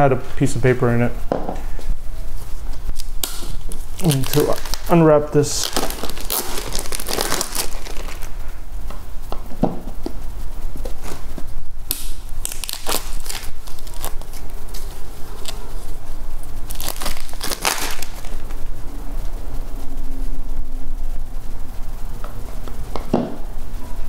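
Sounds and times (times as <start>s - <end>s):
plastic wrapping crinkling and tearing: 3.0s - 8.3s, 12.2s - 15.8s, 16.7s - 18.6s.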